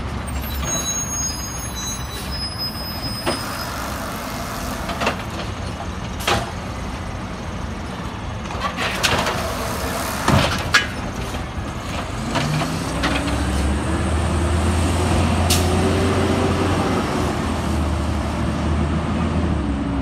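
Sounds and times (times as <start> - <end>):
truck engine revving and droning: 11.8 - 20.0.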